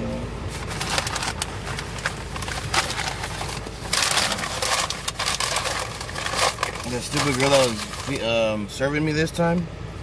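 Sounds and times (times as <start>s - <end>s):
paper bag and foil crinkling: 0.5s - 8.3s.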